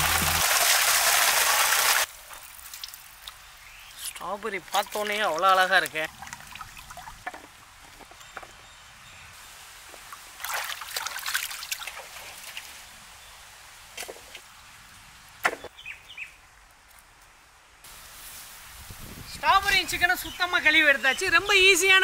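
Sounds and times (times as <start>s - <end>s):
water splashing in a basin: 10.1s - 12.7s.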